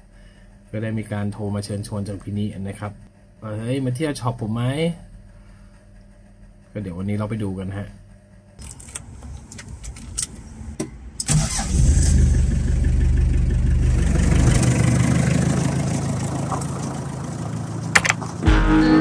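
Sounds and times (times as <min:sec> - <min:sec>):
ignition key clicks: 0:08.6 - 0:10.5
van engine starting and idling: 0:08.6 - 0:19.0.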